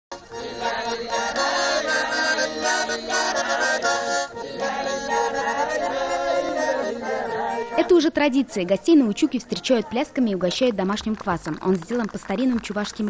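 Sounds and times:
accordion playing folk tune: 0:00.1 - 0:11.9
women singing: 0:00.3 - 0:10.7.

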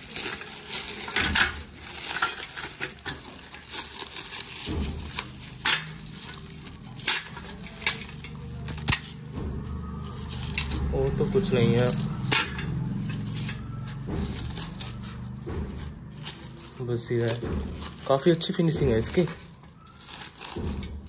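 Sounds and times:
packing material rustling: 0:00.0 - 0:21.0
metal parts clinking: 0:00.2 - 0:04.0, 0:04.7 - 0:09.3, 0:10.3 - 0:15.0.

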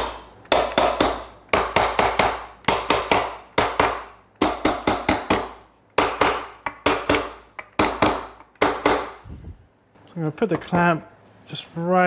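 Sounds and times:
mallet striking wooden stool: 0:00.0 - 0:09.2.

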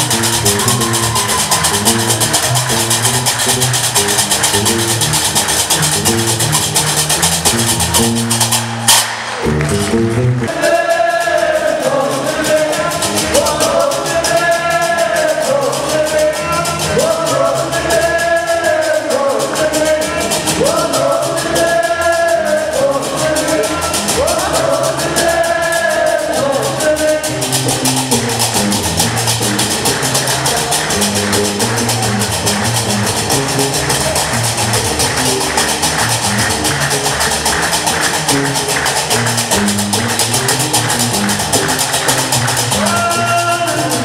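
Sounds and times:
plucked bass line: 0:00.0 - 0:44.0
voices singing together: 0:10.4 - 0:28.2.

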